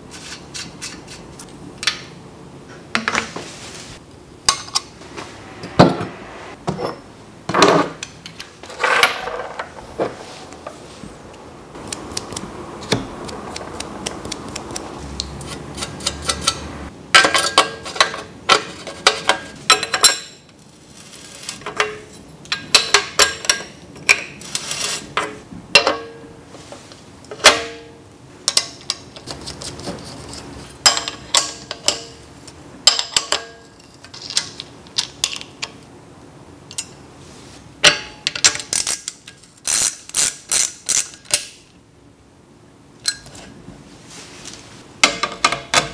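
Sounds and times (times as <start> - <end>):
metal bicycle parts clinking: 15.8 - 20.5, 37.8 - 41.5.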